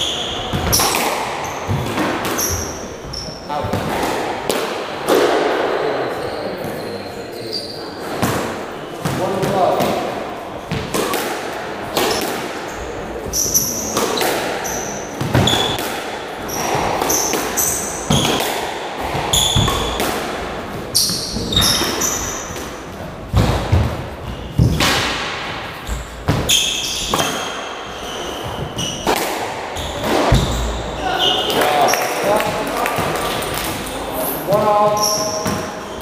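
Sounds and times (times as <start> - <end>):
sneakers squeaking on wooden floor: 0.0 - 4.3, 5.6 - 11.1, 11.9 - 25.0, 25.6 - 36.0
squash ball knocking off rackets and walls: 13.3 - 30.9.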